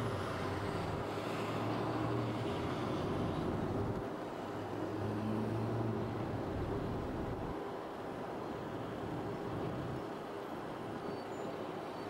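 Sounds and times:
vehicle engines humming: 0:00.0 - 0:07.6
road noise rumble: 0:00.0 - 0:12.0.

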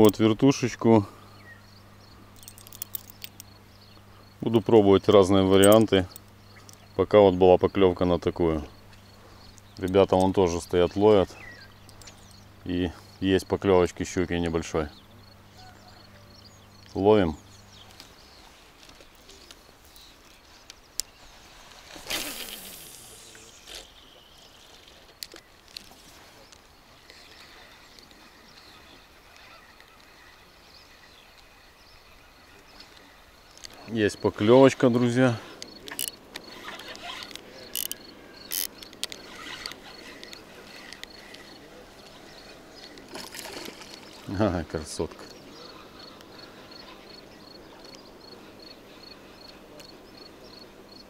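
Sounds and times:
line hissing off reel: 0:21.3 - 0:25.0, 0:35.2 - 0:41.6
short hissy bursts: 0:21.8 - 0:23.9
fishing reel clicks: 0:35.6 - 0:41.6
lure splashing: 0:35.7 - 0:45.2.

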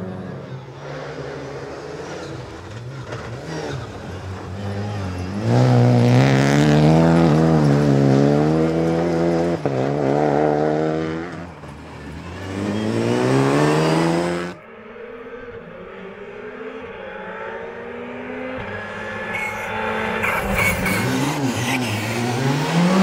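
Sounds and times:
rally car engine revving: 0:00.0 - 0:23.0.

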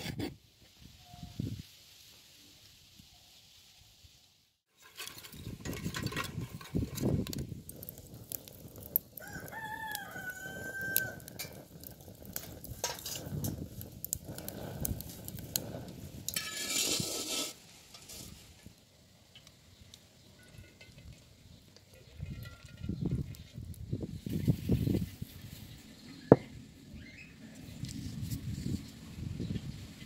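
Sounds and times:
wood fire crackling and popping: 0:04.7 - 0:25.1
rooster crowing: 0:09.2 - 0:11.4.

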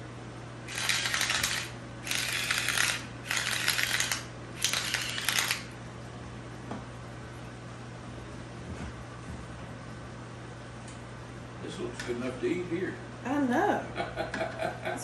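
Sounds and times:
seasoning mill grinding: 0:00.7 - 0:05.7.

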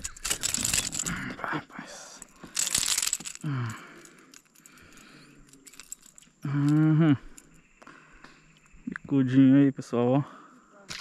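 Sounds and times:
rattling noise: 0:00.0 - 0:01.5, 0:02.2 - 0:06.8.

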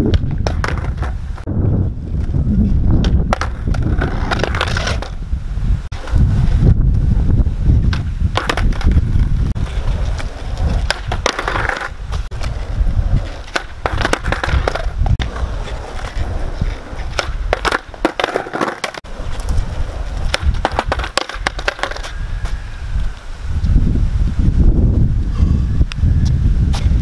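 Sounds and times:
skateboard deck clacking: 0:00.0 - 0:01.5, 0:03.0 - 0:05.2, 0:07.8 - 0:22.2
skateboard wheels rolling on asphalt: 0:00.0 - 0:27.0.

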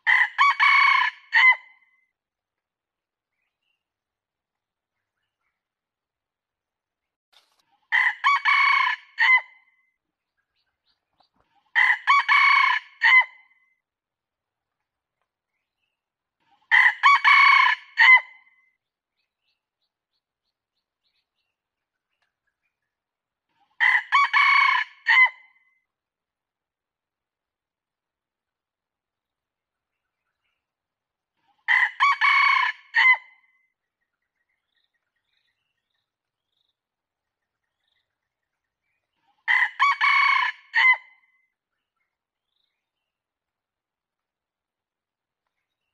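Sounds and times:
rooster crowing: 0:00.1 - 0:01.6, 0:08.0 - 0:09.4, 0:11.8 - 0:13.3, 0:16.7 - 0:18.2, 0:23.8 - 0:25.3, 0:39.5 - 0:41.0.

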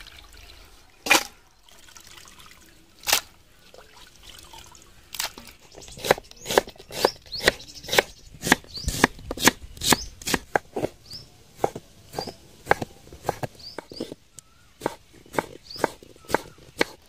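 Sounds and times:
knife cutting on wooden board: 0:06.0 - 0:11.0, 0:14.8 - 0:17.0.

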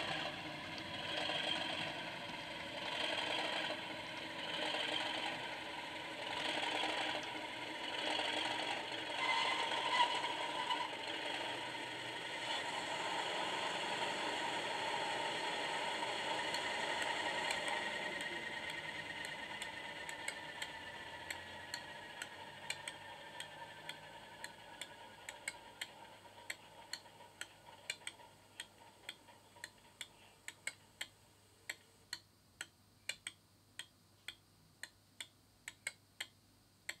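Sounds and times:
regular ticking: 0:00.0 - 0:09.2, 0:13.7 - 0:37.0
model diesel engine sound: 0:00.0 - 0:30.8.

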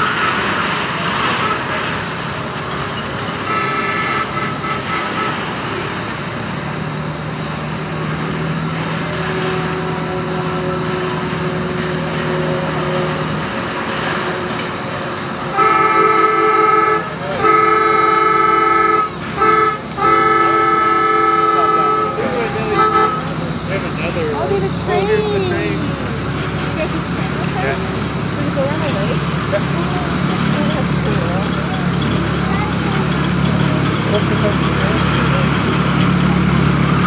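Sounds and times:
diesel locomotive horn blasts: 0:00.0 - 0:06.3, 0:07.8 - 0:37.0
train running noise: 0:00.0 - 0:37.0
short horn toot: 0:15.5 - 0:23.4.

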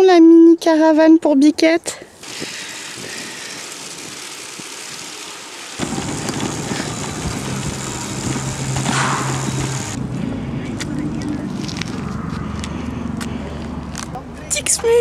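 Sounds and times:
wind: 0:00.0 - 0:15.0
bicycle tyre hiss on asphalt: 0:02.1 - 0:10.0
bike rattling over paving stones: 0:03.0 - 0:10.0.

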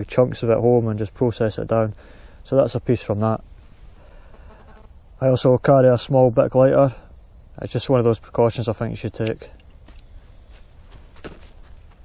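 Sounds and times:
soft knocks and rustles: 0:09.8 - 0:12.0.

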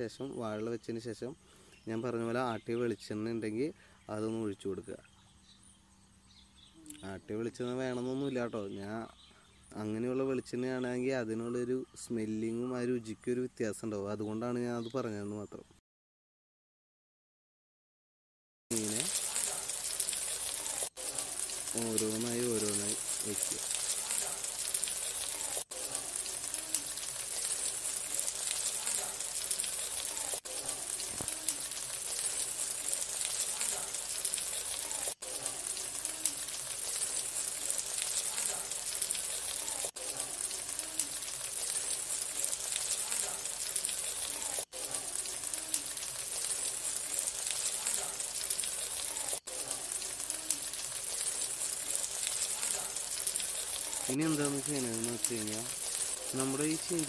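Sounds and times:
fish sizzling in oil: 0:18.7 - 0:57.0.

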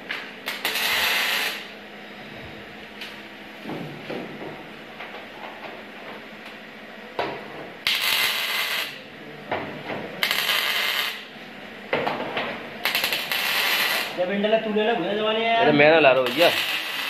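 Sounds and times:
welding arc crackling: 0:00.0 - 0:01.8, 0:07.8 - 0:09.1, 0:10.2 - 0:11.3, 0:12.8 - 0:14.6, 0:15.7 - 0:17.0.

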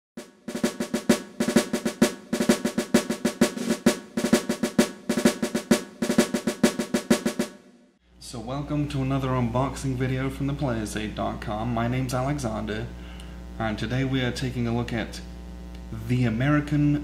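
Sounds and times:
fast snare drumming: 0:00.2 - 0:07.6.

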